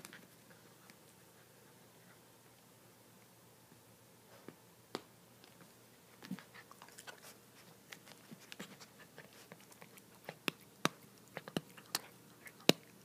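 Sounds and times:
puppy chewing a toy: 0:06.2 - 0:13.0.

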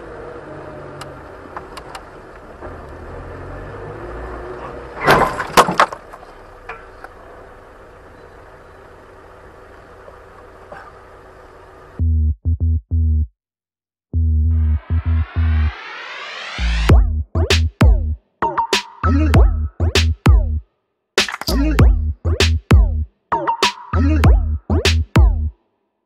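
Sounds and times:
traffic noise: 0:00.0 - 0:12.0
car collision bangs: 0:05.0 - 0:06.3
electronic music with pulsing bass: 0:12.0 - 0:13.3, 0:14.2 - 0:25.6.

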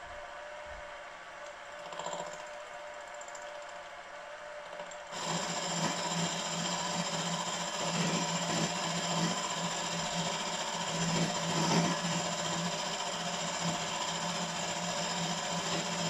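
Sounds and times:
motor humming: 0:04.7 - 0:16.0
milling cutter cutting metal: 0:05.1 - 0:16.0.

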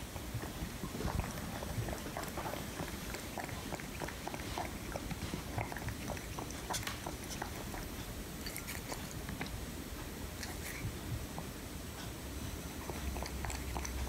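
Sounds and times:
cat lapping water: 0:00.0 - 0:09.6, 0:10.4 - 0:11.5, 0:12.8 - 0:14.0.

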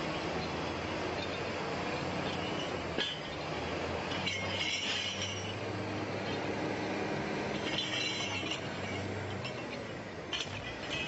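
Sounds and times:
metallic clinking and squealing: 0:02.2 - 0:05.6, 0:07.5 - 0:11.0.

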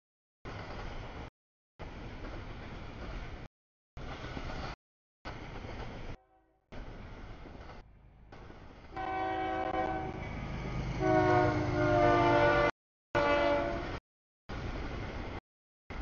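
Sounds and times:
low rumble of passing train: 0:00.5 - 0:16.0
locomotive air horn blasts: 0:09.0 - 0:10.2, 0:11.0 - 0:14.0.

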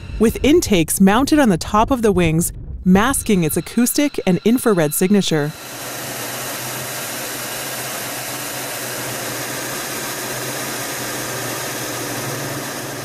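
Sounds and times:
jet engines: 0:03.0 - 0:13.0.

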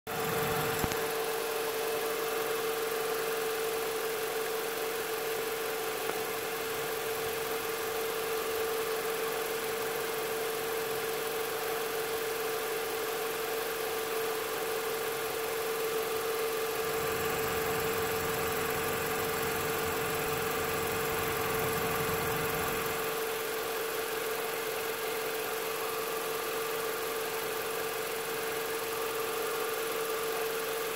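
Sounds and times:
steady machine hum: 0:16.8 - 0:23.6.

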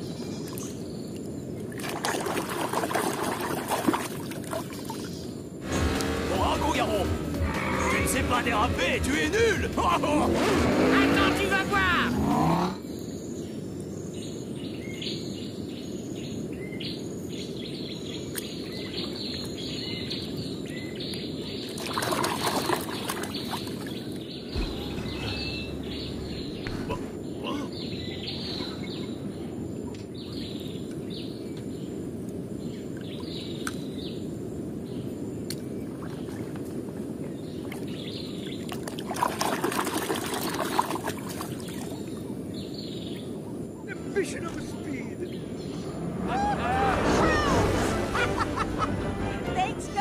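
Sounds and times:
small birds chirping: 0:00.0 - 0:01.8, 0:06.3 - 0:46.1
rush of noise: 0:05.6 - 0:12.9, 0:24.5 - 0:27.7, 0:43.8 - 0:50.0.

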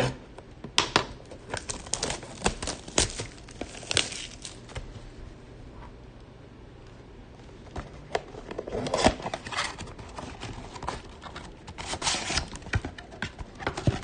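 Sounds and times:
plastic wrap crinkling and tearing: 0:01.4 - 0:04.9.

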